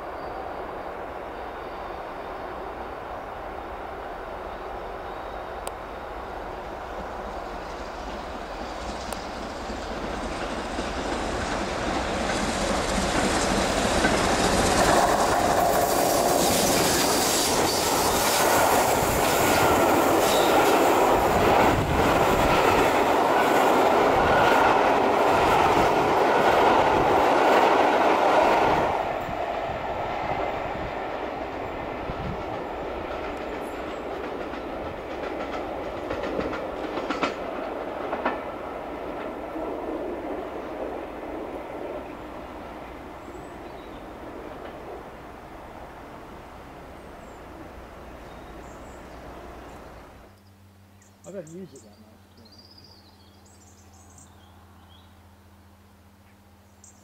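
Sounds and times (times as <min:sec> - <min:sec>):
steam train passing at speed: 0:00.0 - 0:50.3
coach wheels clattering over rail joints: 0:07.0 - 0:28.7, 0:31.4 - 0:41.0.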